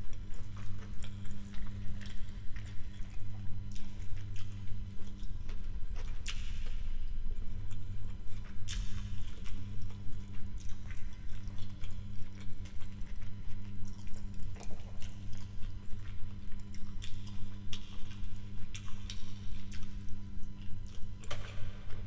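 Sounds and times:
soft rhythmic pulse: 0.0 - 22.0
wet chewing: 0.2 - 6.8, 7.5 - 22.0.

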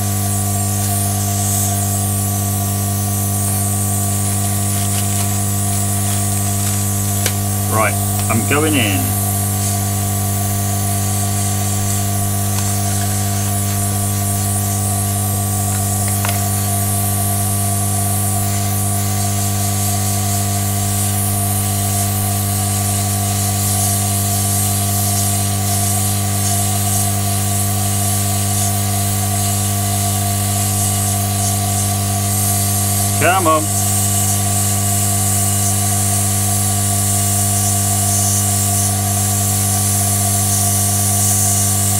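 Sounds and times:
hot air blower hissing: 0.0 - 41.9
steady hum: 4.2 - 14.7, 33.2 - 33.8.

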